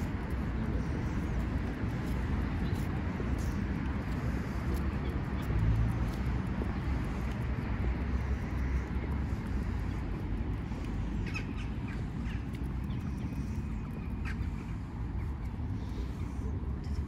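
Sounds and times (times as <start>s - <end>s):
steady low rumble: 0.0s - 17.0s
bird calls: 10.7s - 16.4s.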